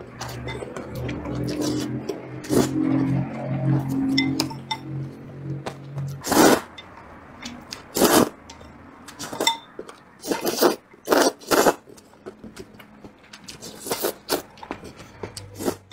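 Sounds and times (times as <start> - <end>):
slurping noodles: 0.2 - 3.2, 6.2 - 6.7, 7.8 - 8.4, 10.2 - 12.0, 13.5 - 15.9.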